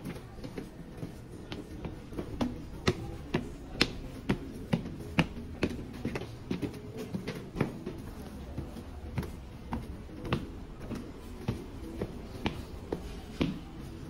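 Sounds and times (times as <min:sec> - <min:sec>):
footsteps on concrete stairs: 0:00.0 - 0:14.0.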